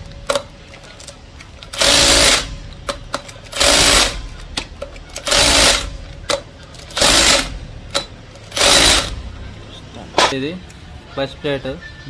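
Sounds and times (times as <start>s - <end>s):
impact wrench hammering: 1.8s - 9.3s.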